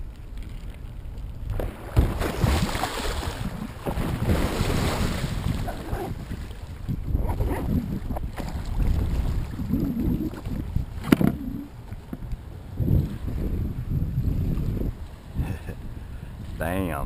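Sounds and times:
water splashing against kayak: 0:00.0 - 0:16.6
wind buffeting microphone: 0:00.0 - 0:17.0
dolphins thrashing in water: 0:01.5 - 0:11.8.

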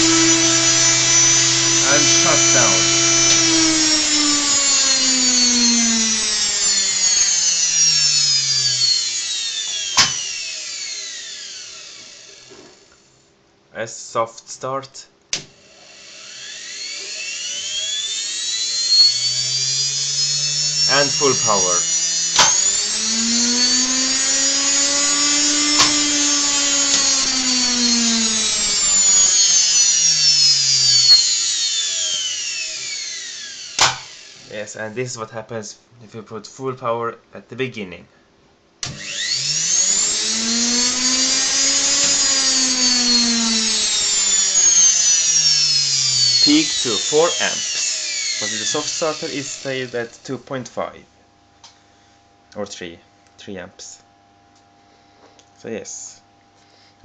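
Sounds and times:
motor whine winding down: 0:00.0 - 0:12.8, 0:15.5 - 0:34.7, 0:38.8 - 0:50.2
sharp click: 0:33.8 - 0:34.1.

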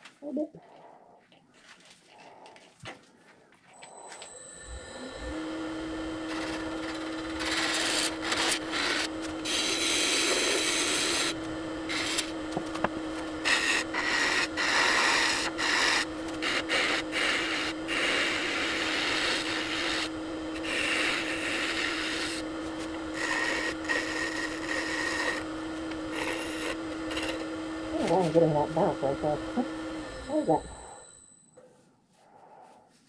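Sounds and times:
wood lathe humming: 0:03.8 - 0:31.2
tool scraping spinning wood: 0:04.6 - 0:31.0.

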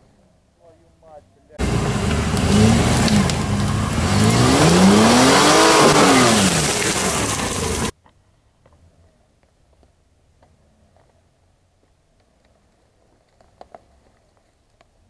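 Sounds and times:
suv engine revving: 0:01.6 - 0:07.9.

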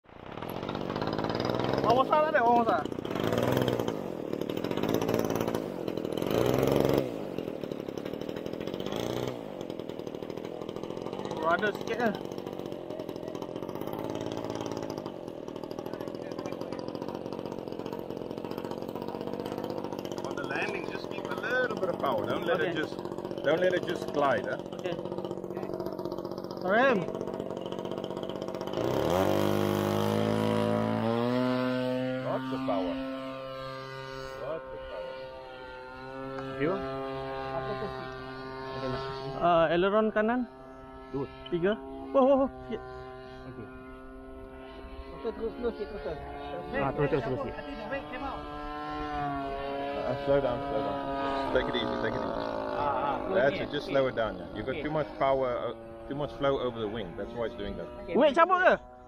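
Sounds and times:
model plane engine buzzing: 0:00.1 - 0:59.0.

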